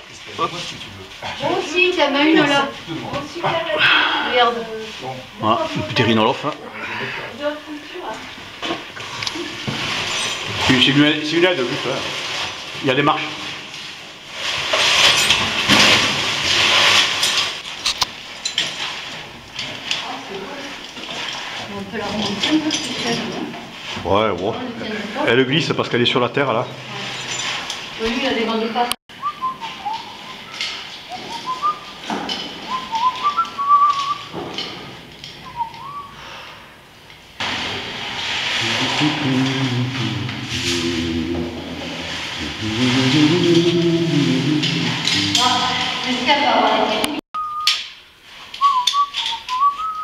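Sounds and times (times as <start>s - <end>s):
gear rustling and scraping on rock: 9.1s - 25.2s, 26.7s - 28.6s, 44.6s - 46.8s
person whistling a tune: 29.2s - 31.9s, 32.7s - 34.3s, 35.4s - 36.2s, 47.4s - 47.8s, 48.6s - 50.0s
steady hiss: 36.1s - 46.8s.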